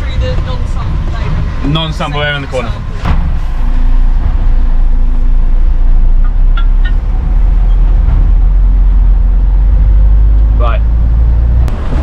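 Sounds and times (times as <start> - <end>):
diesel engine rumbling: 0.0 - 12.0.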